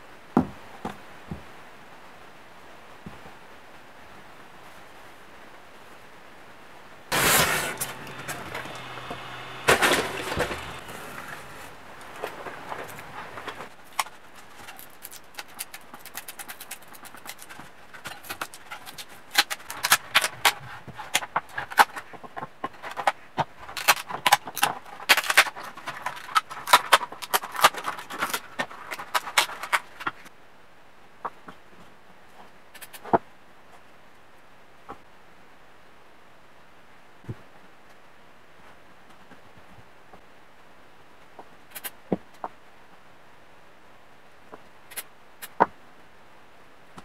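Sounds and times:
plastic parts clattering: 7.1 - 30.3.

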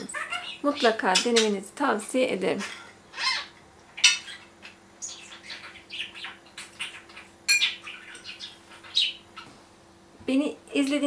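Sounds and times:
bird chirping: 0.0 - 1.6, 3.1 - 9.6.

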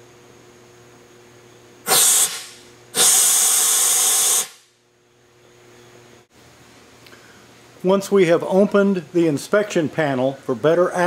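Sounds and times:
compressed-air vacuum hissing: 1.8 - 4.7.

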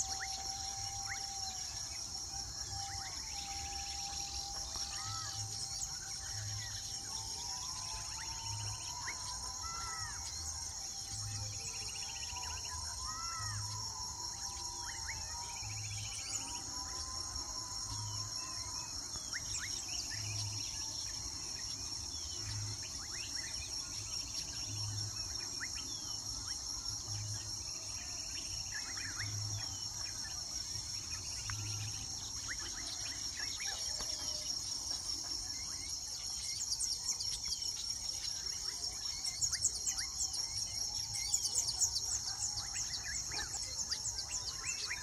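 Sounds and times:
insect chorus: 0.0 - 45.0.

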